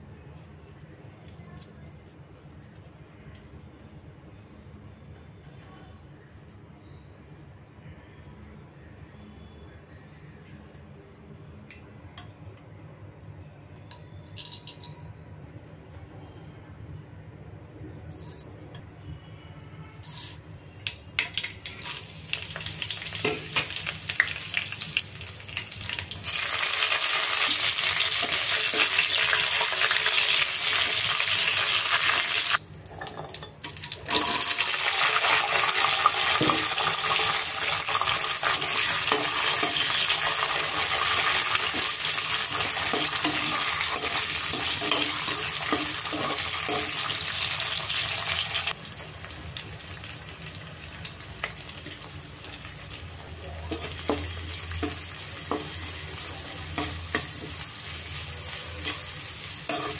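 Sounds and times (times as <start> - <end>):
loud frying sizzle: 20.0 - 32.6, 33.3 - 59.9
spatula stirring a pan: 35.1 - 48.7, 53.7 - 59.9.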